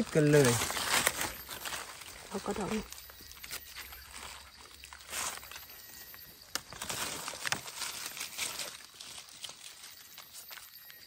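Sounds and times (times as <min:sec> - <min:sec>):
leaf litter rustling and crackling: 0:00.0 - 0:11.0
twigs snapping: 0:06.5 - 0:09.7.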